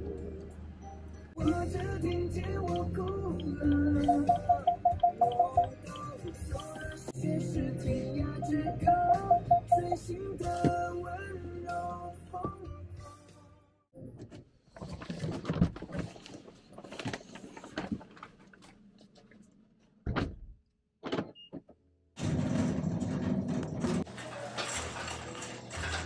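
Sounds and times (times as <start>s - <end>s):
brief high beep: 4.0s - 5.7s, 8.4s - 10.0s.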